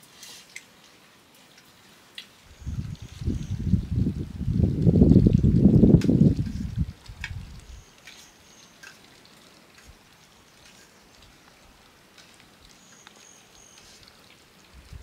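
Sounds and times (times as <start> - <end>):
small ticks and clicks: 5.2 - 15.0.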